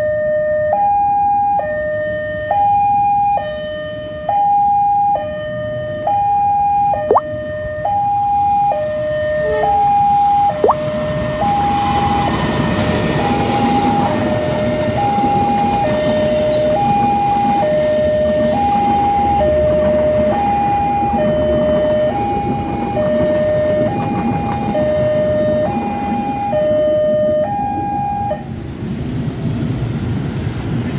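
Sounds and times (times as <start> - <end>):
two-tone crossing alarm: 0.0 - 28.5
train wheels rumbling on rail: 10.9 - 30.9.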